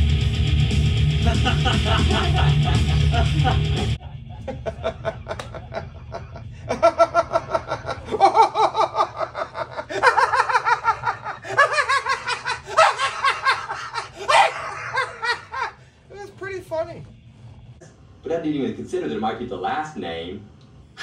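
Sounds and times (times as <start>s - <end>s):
man laughing hard: 1.1s - 15.8s.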